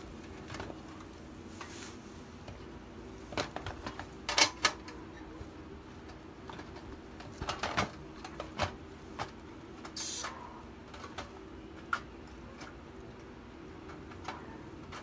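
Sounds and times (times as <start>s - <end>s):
plastic wrapping rustle: 0.1s - 4.3s.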